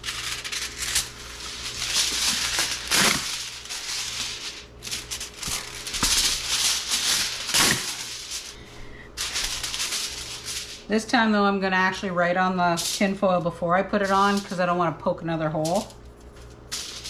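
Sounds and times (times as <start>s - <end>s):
aluminum foil tearing: 0.0s - 10.9s, 14.0s - 14.6s, 15.7s - 17.0s
foil crinkling: 0.0s - 10.9s, 11.9s - 14.7s, 15.6s - 17.0s
foil pulled off roll: 0.0s - 10.9s.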